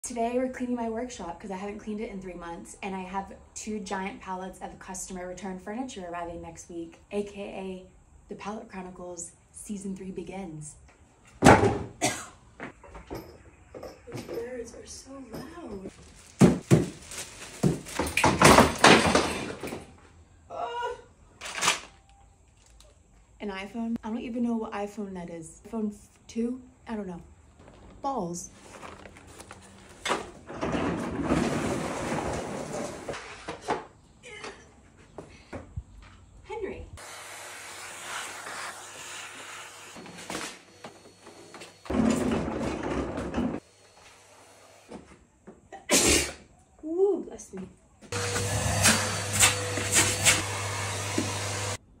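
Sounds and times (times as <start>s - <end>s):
vacuum cleaner running: 37.0s - 42.0s, 43.4s - 45.0s, 48.1s - 51.8s.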